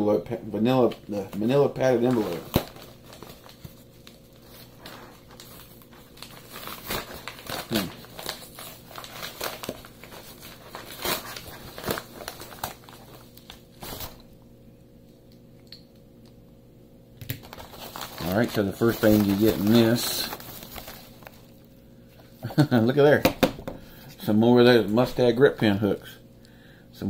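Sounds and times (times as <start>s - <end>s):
padded envelope crinkling: 0.7s - 14.3s, 17.3s - 21.8s
envelope tearing: 1.2s - 14.2s, 17.4s - 21.6s.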